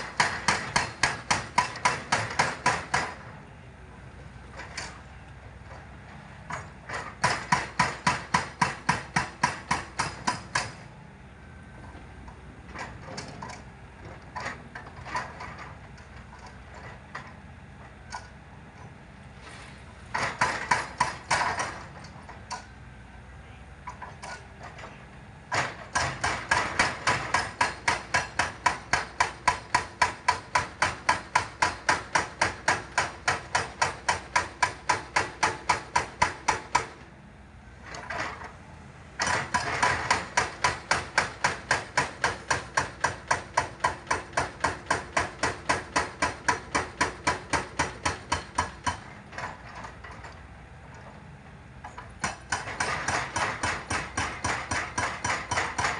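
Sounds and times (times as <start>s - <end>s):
hydraulic breaker hammering rock: 0.0s - 3.4s, 6.5s - 10.9s, 20.1s - 22.7s, 23.8s - 37.1s, 39.2s - 51.2s, 51.8s - 55.9s.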